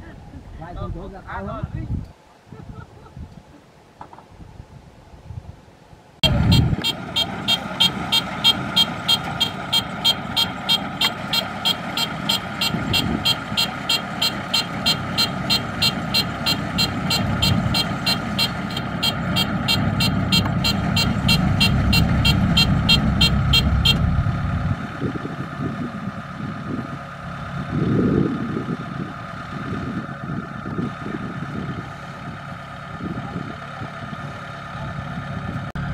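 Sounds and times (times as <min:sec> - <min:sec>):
fast mechanical ticking: 0:06.2 - 0:24.2
diesel engine running: 0:06.2 - 0:35.9.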